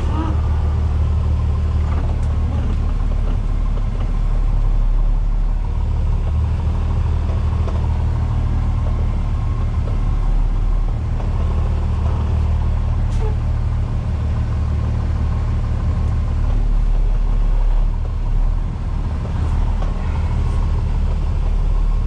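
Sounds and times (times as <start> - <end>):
diesel truck engine droning: 0.0 - 22.0.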